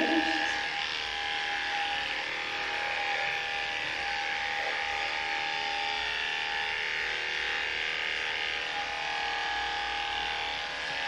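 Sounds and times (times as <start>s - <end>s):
electric clippers humming: 0.0s - 11.0s.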